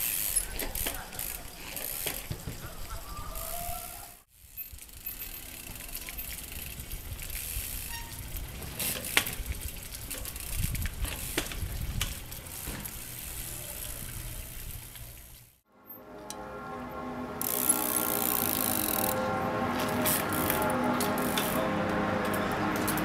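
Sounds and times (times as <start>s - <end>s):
bike tyres knocking: 0.0s - 3.0s, 6.4s - 13.2s
bike tyres thudding: 0.0s - 3.1s, 4.5s - 15.6s
fountain water splashing into trough: 8.2s - 15.5s.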